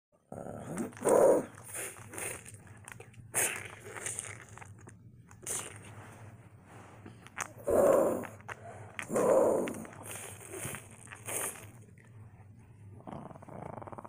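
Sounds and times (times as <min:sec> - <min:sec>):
breathy snarls: 0:07.6 - 0:10.2, 0:13.0 - 0:14.0
boy growling and roaring: 0:09.0 - 0:09.9.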